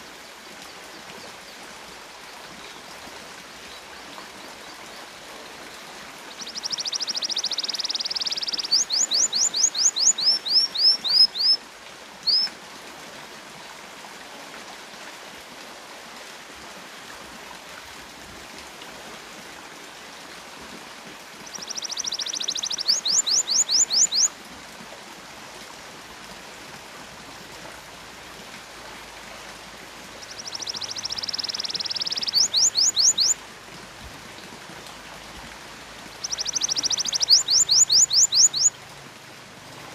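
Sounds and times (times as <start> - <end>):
canary singing: 6.4 - 11.6, 12.2 - 12.5, 21.6 - 24.3, 30.3 - 33.4, 36.2 - 38.7.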